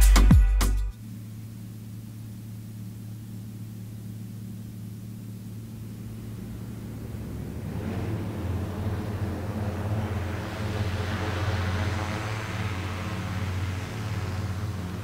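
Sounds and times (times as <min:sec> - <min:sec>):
music with a beat: 0:00.0 - 0:01.0
electric rotors humming: 0:00.9 - 0:15.0.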